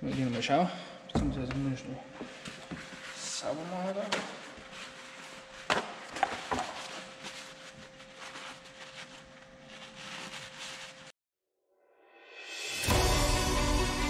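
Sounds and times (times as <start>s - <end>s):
paper towel crinkling: 2.2s - 11.1s.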